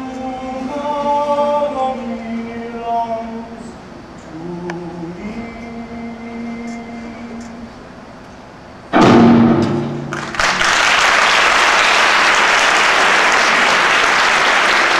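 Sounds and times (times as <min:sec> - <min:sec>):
drum hit: 0:08.9 - 0:10.4
audience applause: 0:10.1 - 0:14.9.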